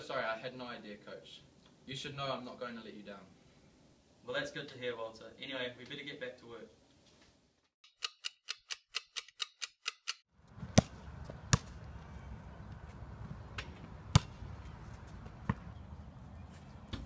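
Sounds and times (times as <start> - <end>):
clock ticks: 7.8 - 10.2
basketball bouncing on concrete: 10.5 - 12.1, 13.6 - 15.9.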